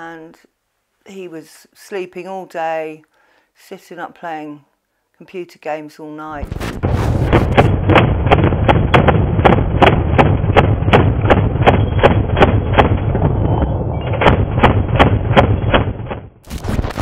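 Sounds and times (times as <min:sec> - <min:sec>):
machine gun firing: 0:06.4 - 0:13.5, 0:14.1 - 0:17.0
heavy low rumble: 0:06.4 - 0:15.4.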